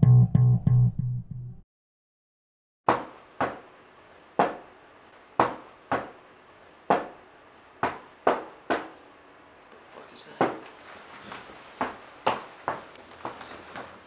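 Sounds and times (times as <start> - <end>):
sharp knocks: 5.4 - 6.2.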